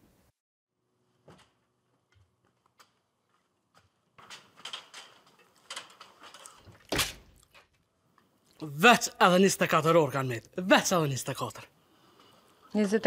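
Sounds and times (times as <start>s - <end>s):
rustling: 1.1s - 7.8s.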